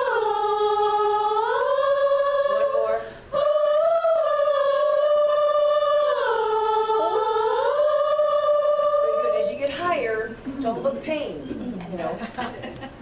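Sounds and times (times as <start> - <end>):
chorus singing: 0.0 - 10.1.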